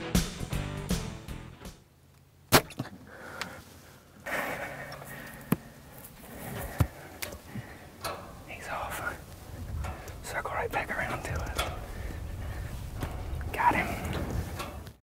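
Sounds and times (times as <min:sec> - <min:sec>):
soft hushed sounds: 0:03.0 - 0:14.8.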